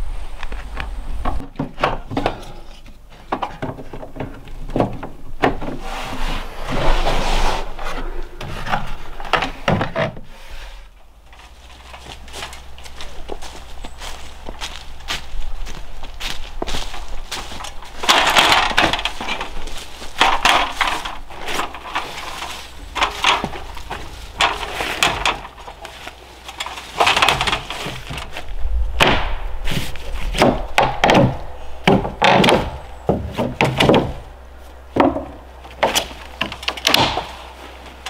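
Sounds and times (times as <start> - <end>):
knocks and bumps on a roof: 30.3 - 34.3, 35.0 - 37.4.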